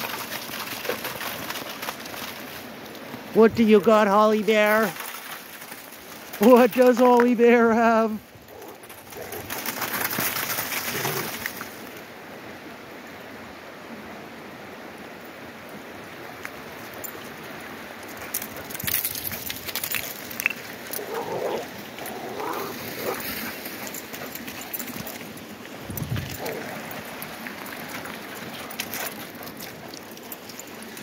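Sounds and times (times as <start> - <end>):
dogs running on gravel: 0.0 - 12.0, 16.2 - 31.0
creek rushing: 19.8 - 31.0.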